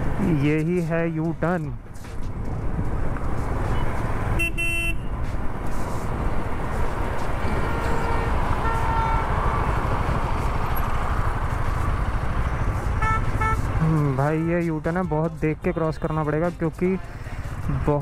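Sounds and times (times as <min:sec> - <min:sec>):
motorcycle and traffic rumble: 0:00.0 - 0:18.0
vehicle horn toot: 0:03.8 - 0:05.1, 0:07.4 - 0:09.7, 0:13.0 - 0:13.8
faint horn beeps: 0:07.4 - 0:09.3.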